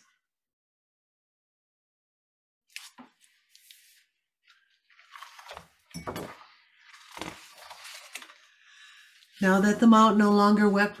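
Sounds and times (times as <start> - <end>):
paper rustling and scraping: 2.7 - 8.6.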